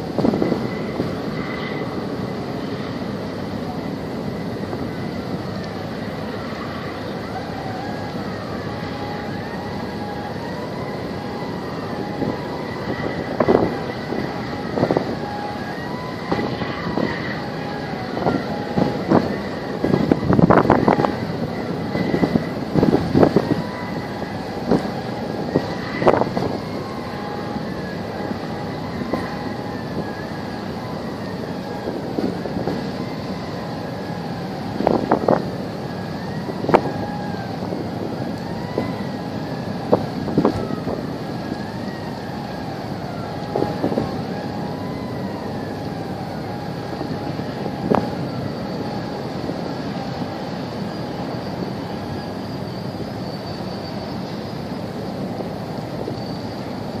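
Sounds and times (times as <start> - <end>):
harbour water: 0.0 - 57.0
wind buffeting microphone: 0.0 - 57.0.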